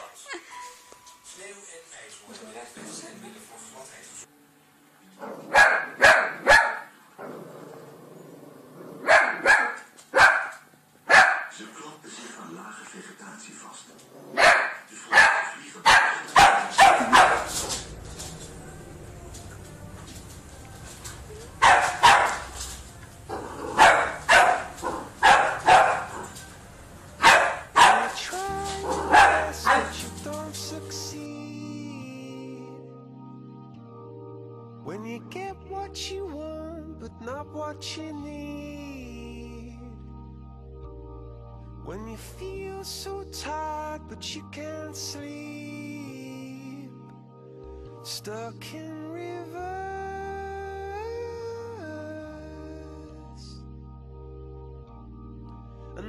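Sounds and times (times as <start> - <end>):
background music: 2.8 - 8.0, 14.1 - 56.0
dog barking: 5.2 - 7.0, 9.0 - 11.6, 14.3 - 17.9, 21.5 - 26.5, 27.2 - 30.1.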